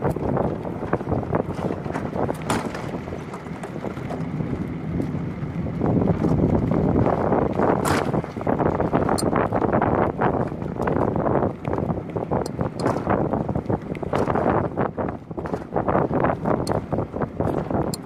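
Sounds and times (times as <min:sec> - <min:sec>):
wheels rumbling on concrete: 0:00.0 - 0:18.0
wind buffeting microphone: 0:00.0 - 0:18.0
small knocks and rattles: 0:00.8 - 0:04.4, 0:12.4 - 0:13.2.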